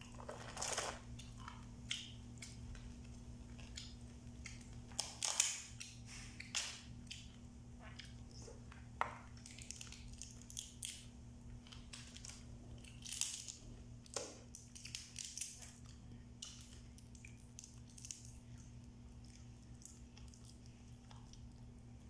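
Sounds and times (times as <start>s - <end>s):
low electrical hum: 0.0s - 22.0s
crab shells cracking: 0.1s - 7.4s, 9.2s - 18.7s.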